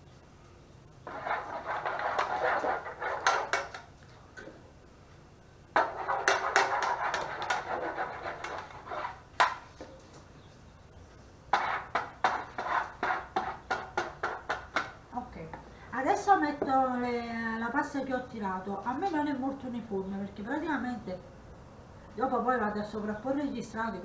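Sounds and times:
spatula scraping a metal pan: 1.0s - 3.9s, 5.8s - 9.7s, 11.5s - 14.9s
sharp knocks: 1.4s - 3.8s, 5.8s - 8.8s, 11.5s - 15.0s.

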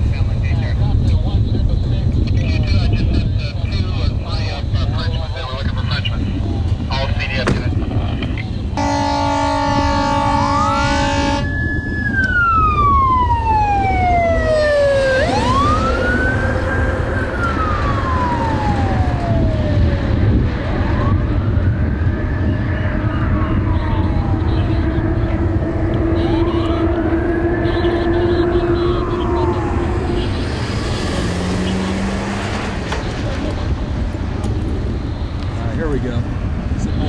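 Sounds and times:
steady low rumble: 0.0s - 37.0s
fire engine siren wailing: 8.8s - 35.6s
steady chord of tones: 24.2s - 32.8s.

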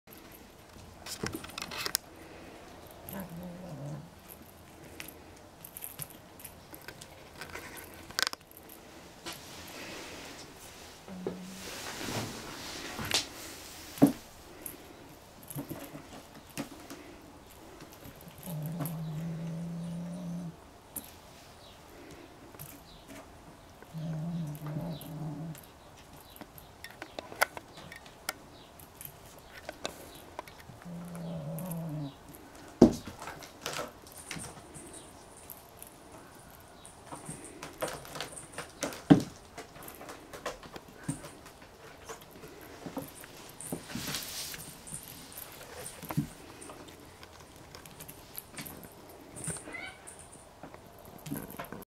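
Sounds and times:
claws scratching cat tower: 0.1s - 21.2s
kitten growling: 3.1s - 4.2s, 18.3s - 20.6s, 23.9s - 25.6s, 30.8s - 32.2s
kittens knocking and scratching: 22.6s - 51.8s.

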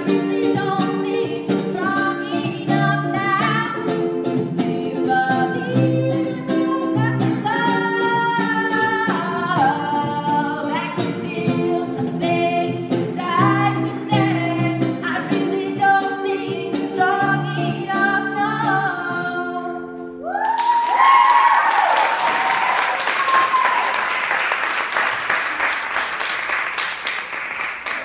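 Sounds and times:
woman singing: 0.0s - 20.1s
acoustic guitar: 0.0s - 20.3s
whoops and cheers: 20.2s - 24.3s
audience applause: 20.4s - 28.0s.

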